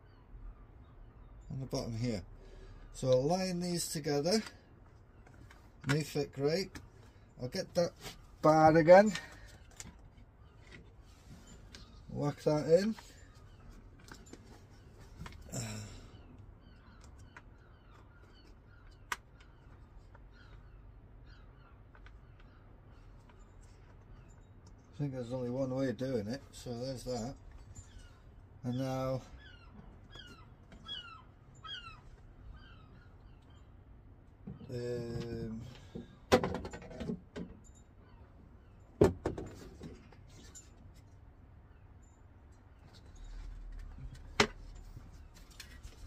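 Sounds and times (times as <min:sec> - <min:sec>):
plastic panels clicking and knocking: 0:36.0 - 0:37.6.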